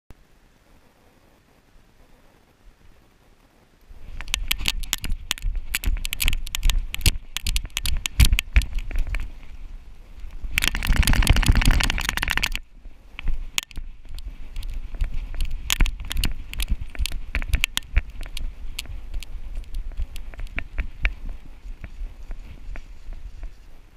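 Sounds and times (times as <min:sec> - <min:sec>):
camera mount rattling and knocking: 0:04.2 - 0:09.2, 0:10.5 - 0:12.6, 0:15.3 - 0:18.4.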